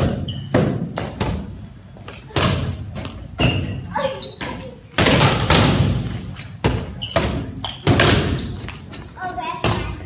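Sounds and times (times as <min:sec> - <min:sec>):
rackets batting balloons: 0:04.4 - 0:10.0.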